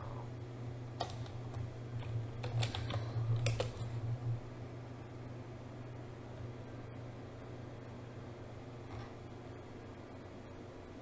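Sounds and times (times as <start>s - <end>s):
low hum: 0.0s - 11.0s
keyboard keys clicking: 1.0s - 3.9s.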